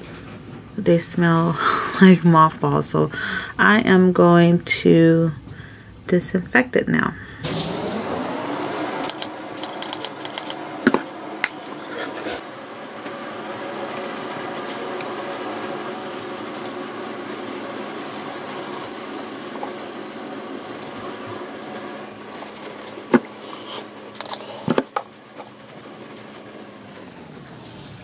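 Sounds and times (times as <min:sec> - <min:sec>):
brush and bottle knocks and clicks: 0:09.0 - 0:11.6, 0:24.2 - 0:25.0.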